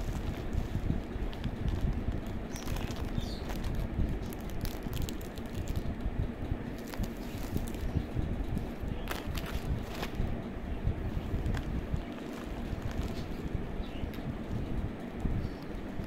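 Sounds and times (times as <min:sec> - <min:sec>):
plastic bag crinkling: 0:00.0 - 0:05.9, 0:06.7 - 0:08.0, 0:08.6 - 0:10.2, 0:11.2 - 0:13.5
bubble wrap crackling: 0:00.0 - 0:06.0, 0:06.7 - 0:10.4, 0:11.1 - 0:14.2
low microphone rumble: 0:00.0 - 0:16.0.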